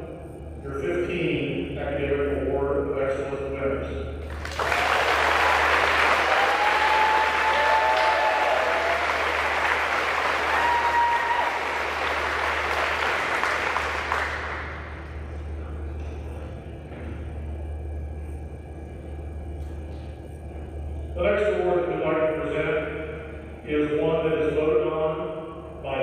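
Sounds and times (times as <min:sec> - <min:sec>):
audience applauding: 0:04.3 - 0:15.1.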